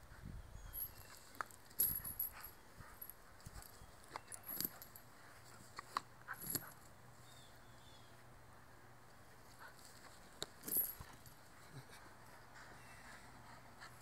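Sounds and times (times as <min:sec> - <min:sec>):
metal chain rattling: 0:00.7 - 0:05.1, 0:06.3 - 0:06.8, 0:10.6 - 0:11.5.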